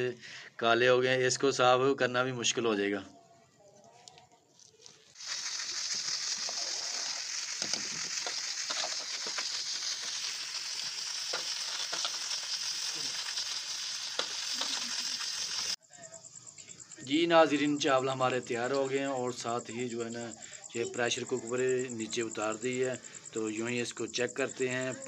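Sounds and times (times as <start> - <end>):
fire pops and crackles: 5.1 - 15.8
rice boiling in pot: 5.1 - 15.8.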